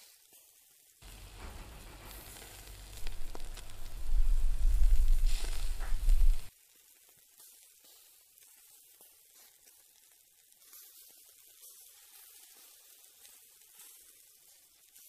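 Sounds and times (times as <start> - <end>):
meat sizzling on a grill: 0.0 - 15.0
heavy low rumble: 1.0 - 6.5
light pops: 1.0 - 6.5.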